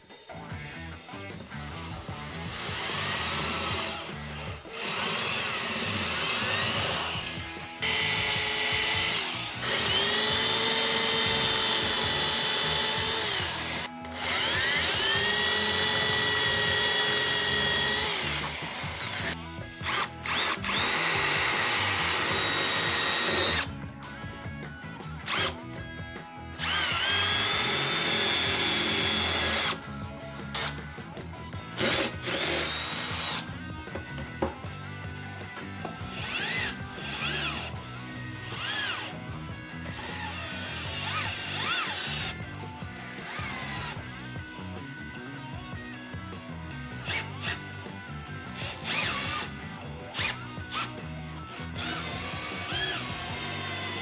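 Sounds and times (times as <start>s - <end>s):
background music: 0.0s - 54.0s
drill boring into concrete: 1.8s - 23.7s, 25.3s - 25.6s, 26.6s - 29.8s, 30.5s - 30.8s, 31.6s - 33.6s, 35.8s - 39.2s, 39.8s - 44.0s, 47.0s - 47.7s, 48.5s - 54.0s.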